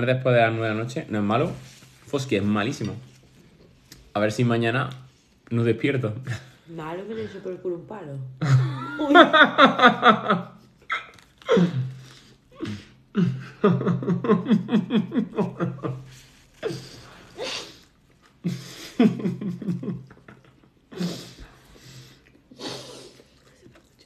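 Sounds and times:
man laughing hard: 13.2s - 16.0s.

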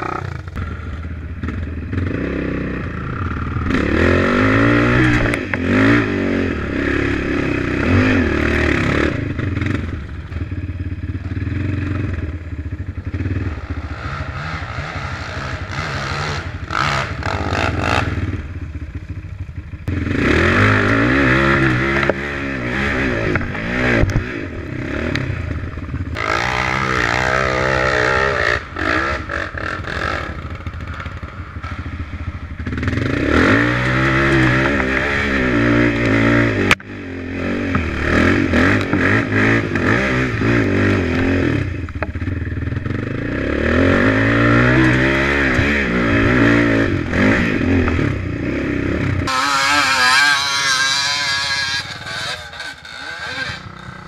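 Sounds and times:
atv engine revving: 0.0s - 54.0s.

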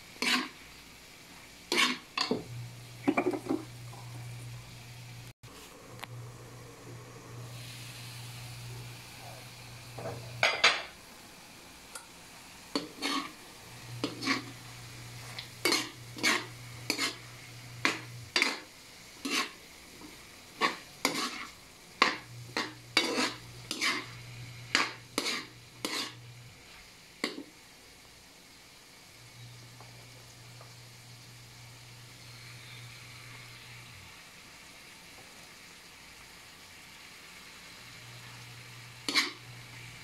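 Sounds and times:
metal spatula scraping a wok: 0.2s - 0.6s, 1.7s - 2.4s, 12.7s - 13.4s, 14.0s - 26.3s, 39.0s - 39.5s.

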